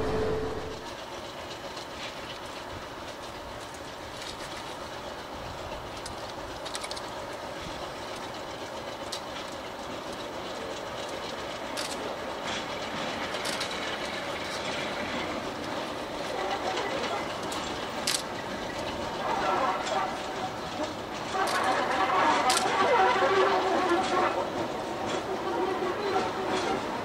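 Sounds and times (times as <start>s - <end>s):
train rumbling on rails: 0.0s - 27.0s
sharp rail clicks: 0.2s - 25.3s.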